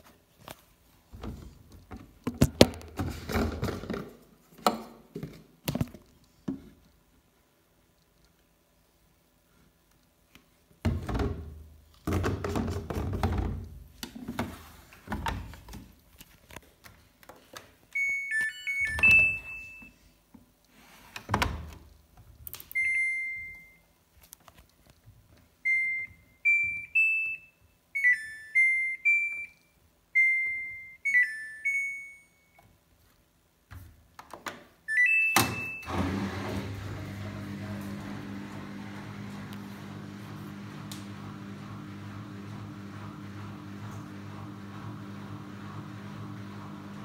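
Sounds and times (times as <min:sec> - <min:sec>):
washing machine control panel beeping: 0:18.0 - 0:19.9, 0:22.7 - 0:23.8, 0:34.9 - 0:44.7
washing machine running hum: 0:35.5 - 0:47.0.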